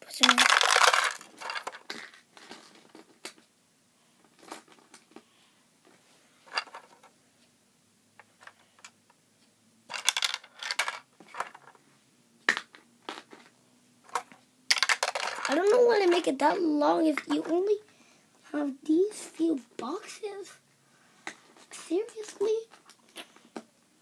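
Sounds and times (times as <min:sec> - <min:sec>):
plastic toy bricks clicking and clattering: 0:00.0 - 0:03.4, 0:06.5 - 0:07.1, 0:09.9 - 0:11.8, 0:14.1 - 0:16.4, 0:21.4 - 0:23.2.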